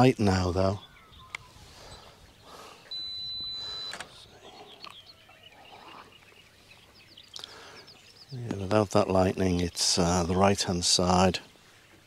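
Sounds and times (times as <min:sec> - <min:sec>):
high electronic beep: 0:02.9 - 0:04.1.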